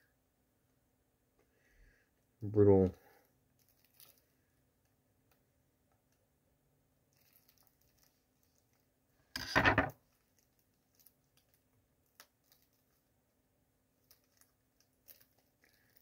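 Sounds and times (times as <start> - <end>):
plastic wrap crinkle: 3.5 - 4.4, 7.1 - 8.9, 9.9 - 13.1, 14.0 - 16.0.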